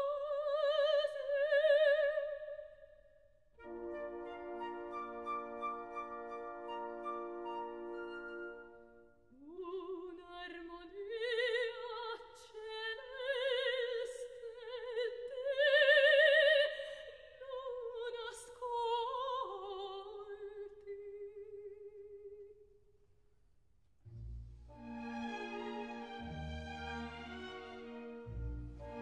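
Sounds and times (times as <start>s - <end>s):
soprano singing opera: 0.0s - 2.8s, 9.4s - 22.5s.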